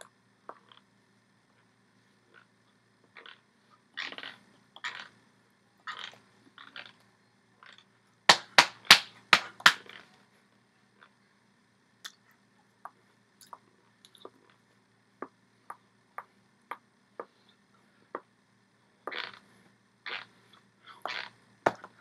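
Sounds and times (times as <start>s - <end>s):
hands slapping: 8.3s - 9.9s.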